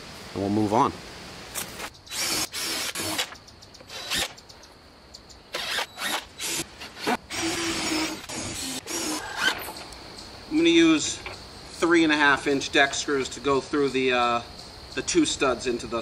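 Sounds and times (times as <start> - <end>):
cordless driver driving screws: 2.1 - 4.4.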